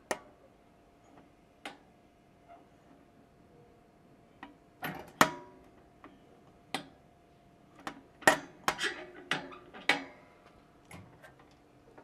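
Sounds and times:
metal latch clicks and clanks: 4.4s - 5.6s, 7.8s - 10.2s.

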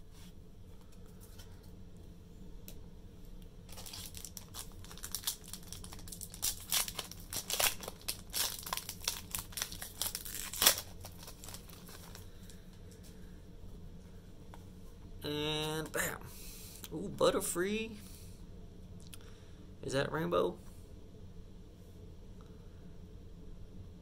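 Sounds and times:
foil wrapper crinkling and tearing: 3.7s - 12.6s.

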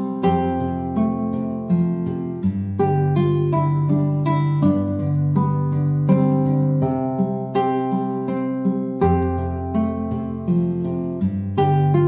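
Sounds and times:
plucked acoustic guitar music: 0.0s - 12.0s.

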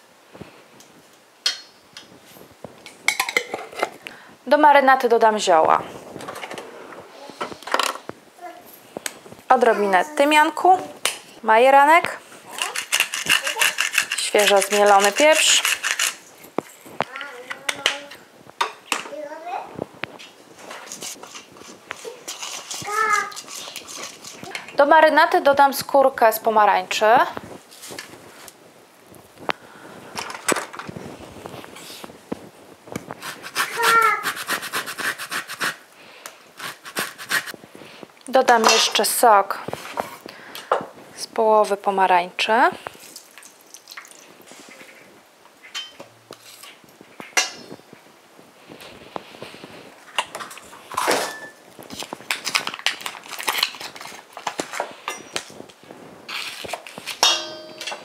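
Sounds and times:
utensils clinking against bowl: 2.9s - 4.0s, 12.6s - 16.2s, 38.5s - 39.1s, 45.8s - 46.0s, 57.2s - 58.0s
grater rasping on orange peel: 12.6s - 16.2s, 20.9s - 24.5s, 33.2s - 35.8s, 36.6s - 37.5s
ringing metallic clink: 57.2s - 58.0s.

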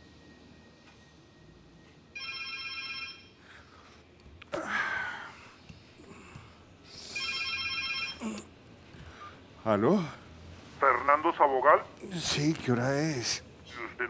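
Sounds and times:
telephone ringing: 2.1s - 3.4s, 7.2s - 8.2s.

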